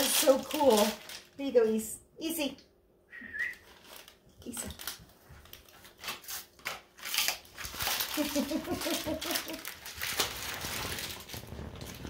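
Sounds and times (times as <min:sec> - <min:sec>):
dog crunching dried fish: 0:03.6 - 0:10.4.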